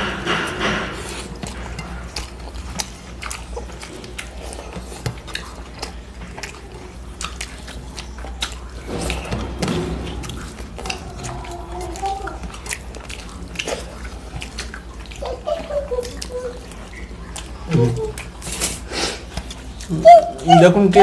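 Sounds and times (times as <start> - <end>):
steady low hum: 0.0 - 20.4
fingers mixing rice on plates: 0.0 - 21.0
people chewing food: 0.0 - 21.0.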